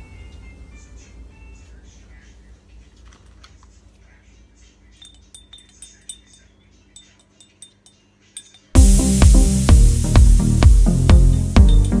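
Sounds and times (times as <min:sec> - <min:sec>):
faint steady hum: 0:00.0 - 0:12.0
paintbrush clinking on glass jar: 0:05.0 - 0:08.8.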